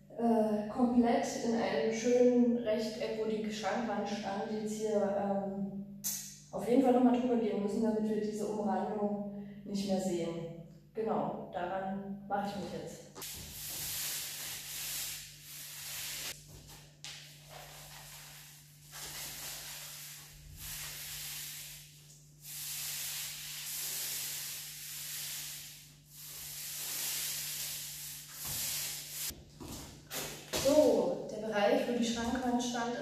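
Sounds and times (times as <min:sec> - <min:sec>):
paint roller rasping on wall: 0:13.2 - 0:29.4.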